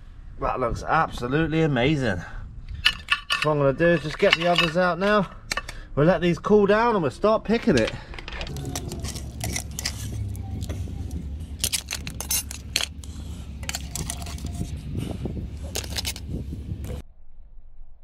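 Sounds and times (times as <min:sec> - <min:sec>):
low rumble: 0:08.3 - 0:18.0
metal spoon clinking on pot: 0:11.6 - 0:13.0.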